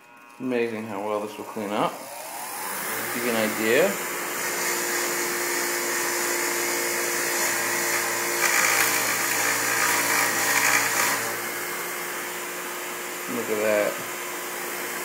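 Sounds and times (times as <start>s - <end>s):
bench grinder humming: 0.0s - 15.0s
wire wheel scrubbing metal bar: 3.2s - 11.3s.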